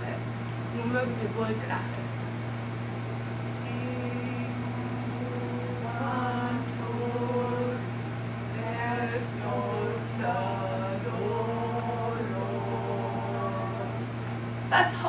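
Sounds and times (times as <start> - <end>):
steady low hum: 0.0 - 15.0
woman singing chant-like melody: 3.6 - 15.0.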